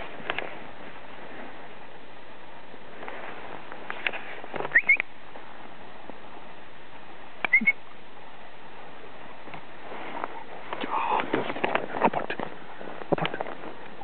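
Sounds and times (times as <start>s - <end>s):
person whistling: 4.7s - 5.0s, 7.5s - 7.8s.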